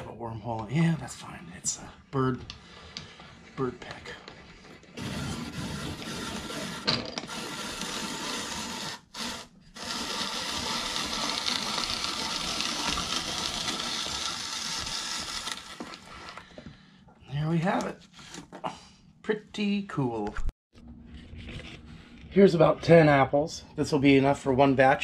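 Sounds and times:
apple peeler mechanical grinding: 0:04.9 - 0:16.6.

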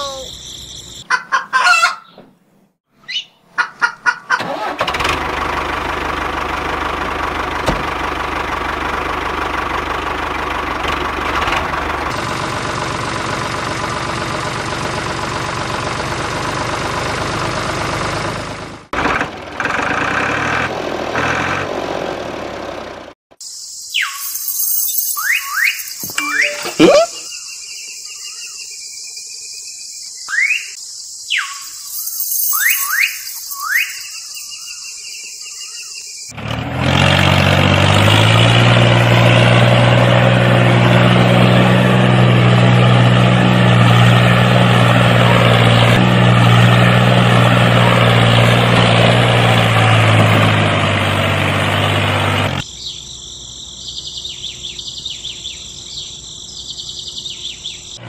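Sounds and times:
tractor engine running: 0:04.4 - 0:23.2, 0:36.3 - 0:58.0
quick rising chirps: 0:23.4 - 0:29.1, 0:30.2 - 0:36.3.

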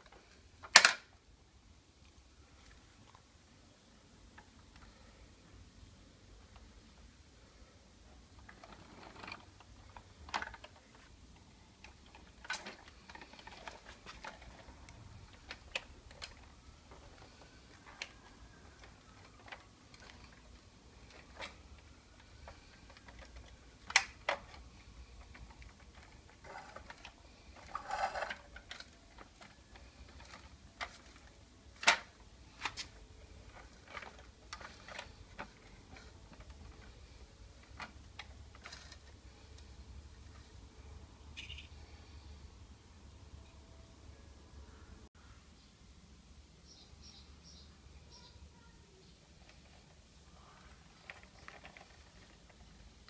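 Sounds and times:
plastic toy tractor clicks and knocks: 0:00.0 - 0:01.2, 0:08.4 - 0:39.8, 0:50.7 - 0:53.0.

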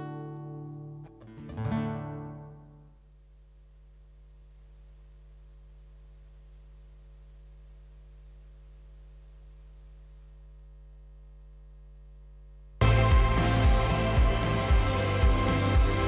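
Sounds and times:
low steady hum: 0:02.1 - 0:14.9.

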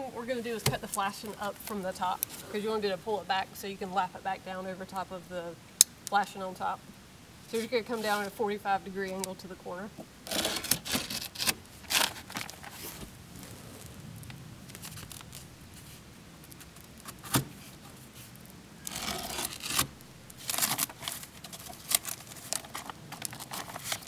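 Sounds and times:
blade rasping through plastic wrap: 0:10.2 - 0:14.0, 0:14.7 - 0:24.0
plastic wrap rustling: 0:10.2 - 0:24.0.

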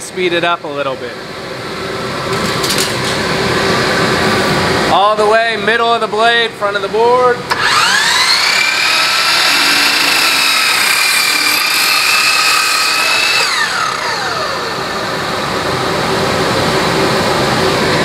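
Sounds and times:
dust collector running: 0:06.9 - 0:18.0
miter saw whining: 0:07.5 - 0:16.0.

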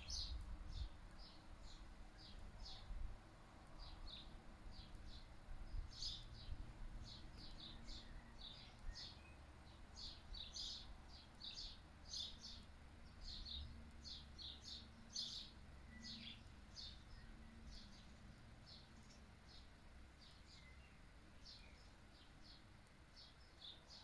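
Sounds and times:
low wind rumble: 0:00.0 - 0:03.2
small birds chirping: 0:00.0 - 0:24.0.

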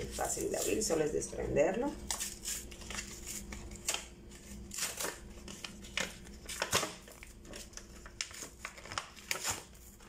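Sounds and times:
plastic packaging crinkling: 0:02.0 - 0:10.0.

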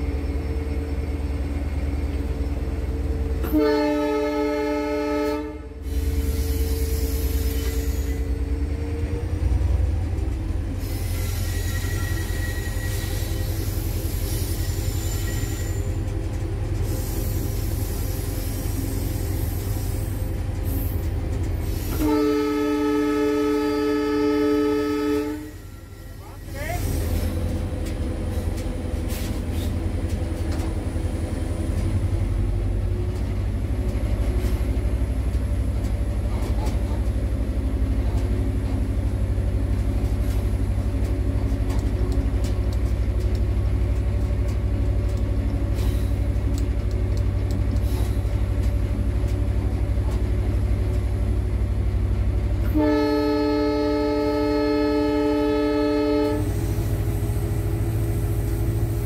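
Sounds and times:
locomotive horn blast: 0:03.4 - 0:05.8, 0:21.9 - 0:25.7, 0:52.6 - 0:56.9.

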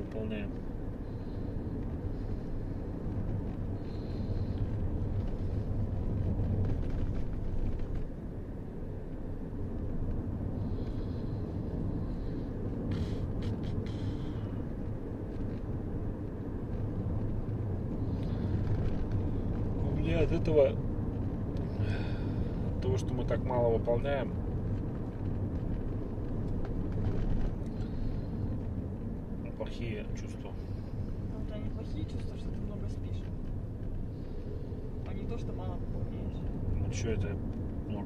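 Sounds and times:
engine and tyres rumbling: 0:00.0 - 0:38.0.

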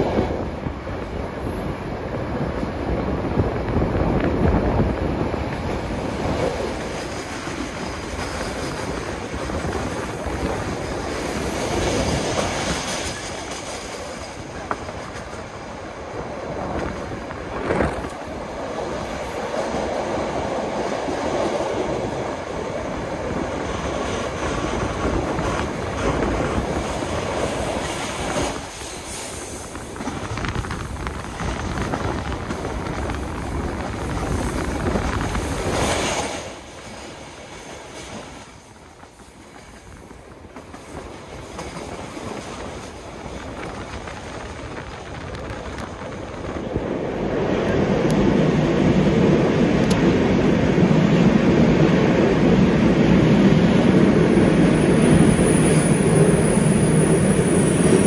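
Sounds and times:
train wheels rumbling on track: 0:00.0 - 0:58.0.

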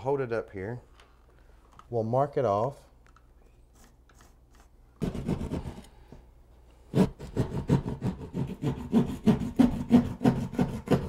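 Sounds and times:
hand saw rasping through drywall: 0:05.0 - 0:05.8, 0:06.9 - 0:11.0
pencil scratching: 0:05.0 - 0:05.9, 0:06.9 - 0:11.0.

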